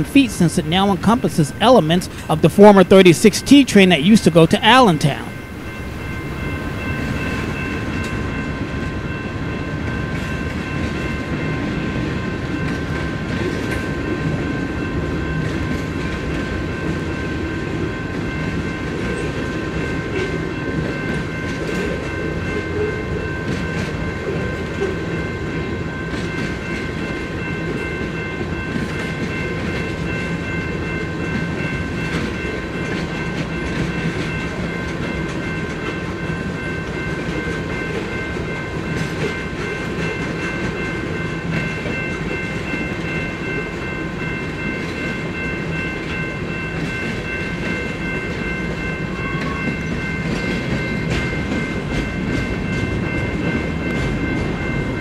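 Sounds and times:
high-pitched ringing tones: 0:00.0 - 0:11.6
train rumble: 0:00.0 - 0:55.0.

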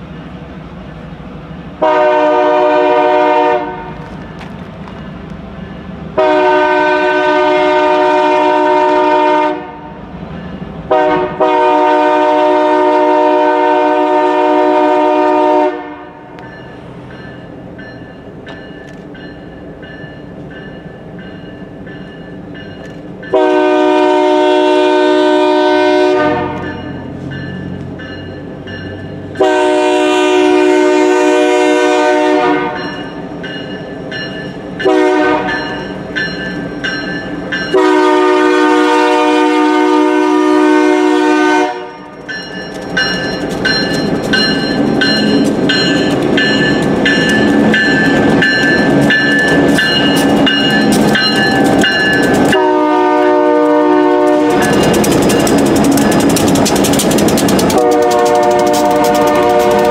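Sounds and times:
train rumble: 0:00.0 - 0:59.9
locomotive air horn blasts: 0:01.8 - 0:04.0, 0:06.2 - 0:10.0, 0:10.9 - 0:16.4, 0:23.3 - 0:26.9, 0:29.4 - 0:32.9, 0:34.8 - 0:35.6, 0:37.7 - 0:42.1, 0:52.4 - 0:55.0, 0:57.6 - 0:59.9.

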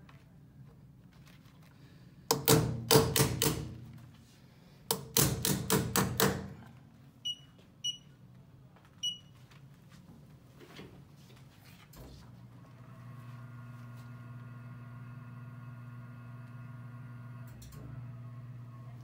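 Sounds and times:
short electronic beeps: 0:07.2 - 0:08.1.

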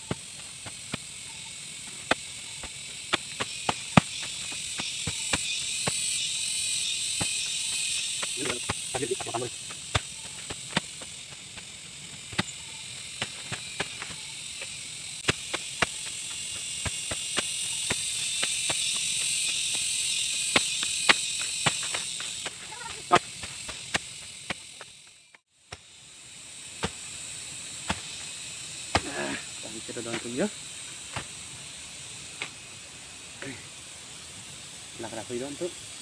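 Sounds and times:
insects chorus: 0:00.0 - 0:36.0
hoe chopping into soil: 0:01.9 - 0:06.1, 0:07.1 - 0:24.9, 0:28.9 - 0:29.4, 0:30.1 - 0:30.4.

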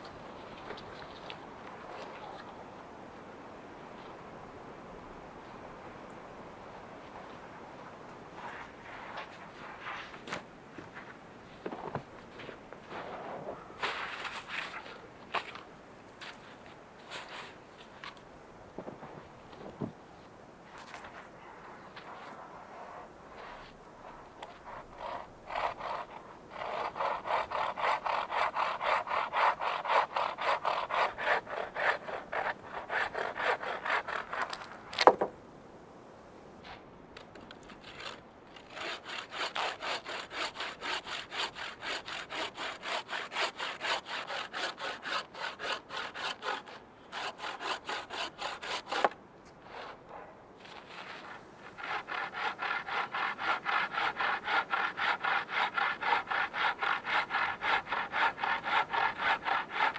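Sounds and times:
bow saw rasping through log: 0:22.0 - 0:34.7, 0:37.7 - 0:50.0, 0:50.6 - 0:59.9.

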